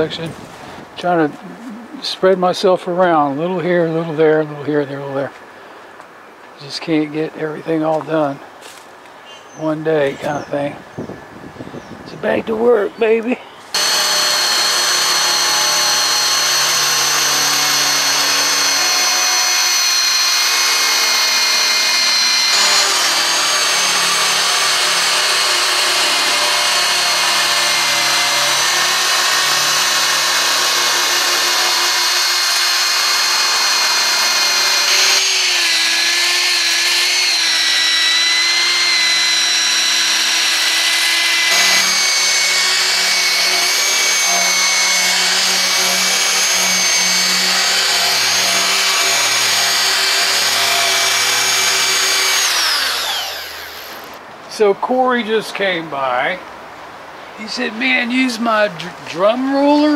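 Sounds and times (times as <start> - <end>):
electric drill motor whine: 13.7 - 54.2
abrasive wheel grinding metal: 13.8 - 54.2.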